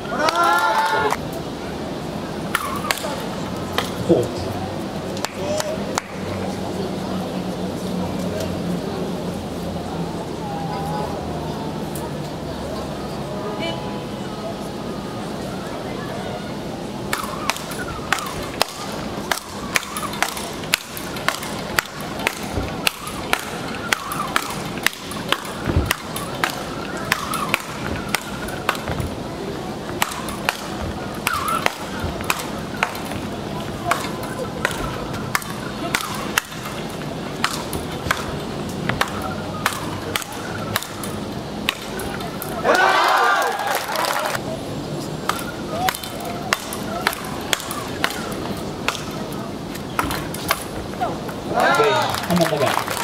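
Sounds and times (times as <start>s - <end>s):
paddle hitting ball clacks: 17.1s - 29.1s, 29.9s - 33.3s, 33.9s - 42.5s.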